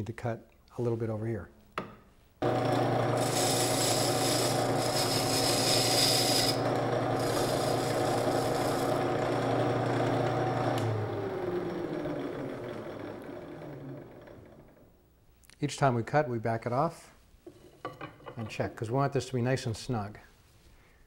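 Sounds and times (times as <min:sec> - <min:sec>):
tool bit scraping wood: 0:02.4 - 0:10.1
lathe motor hum: 0:02.4 - 0:14.8.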